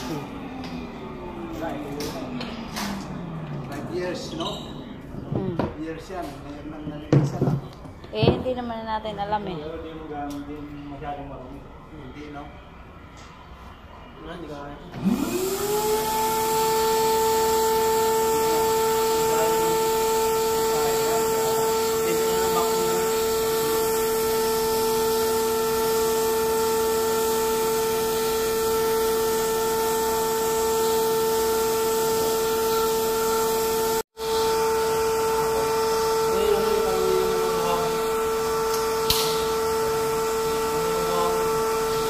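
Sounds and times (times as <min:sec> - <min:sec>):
vacuum cleaner motor: 0:14.9 - 0:42.0.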